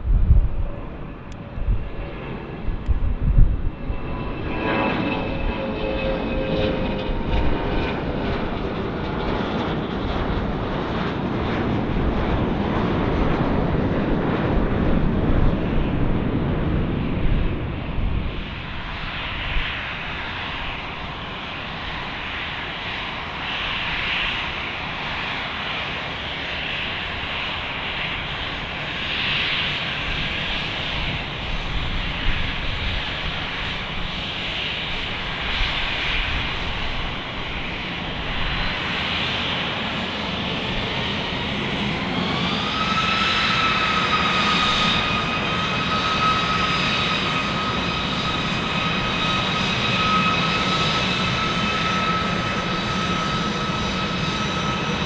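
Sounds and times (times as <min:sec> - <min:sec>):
jet engines rumbling: 0:00.0 - 0:55.0
jet whine sliding down: 0:29.8 - 0:55.0.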